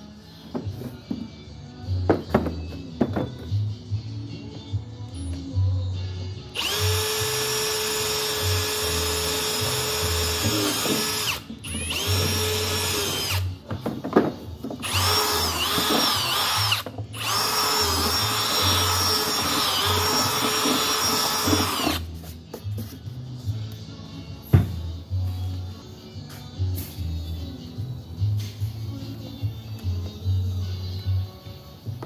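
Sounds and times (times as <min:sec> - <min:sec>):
background music with low beat: 0:00.0 - 0:32.0
electric drill whining: 0:06.6 - 0:13.6, 0:14.8 - 0:22.1.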